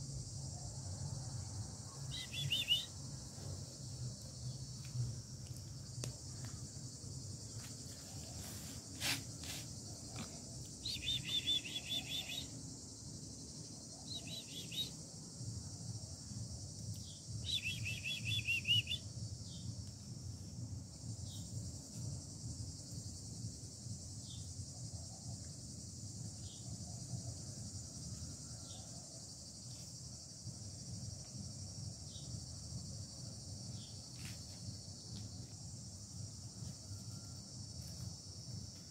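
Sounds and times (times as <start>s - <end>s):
high-pitched insect chorus: 0.0s - 38.9s
short single bird chirps: 2.1s - 2.9s
songbird trilling: 2.1s - 2.9s, 10.8s - 12.5s.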